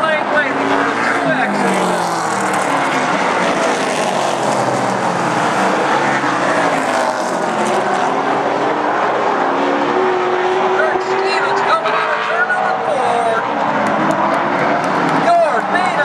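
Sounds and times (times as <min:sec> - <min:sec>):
race car engines passing: 0:00.0 - 0:16.0.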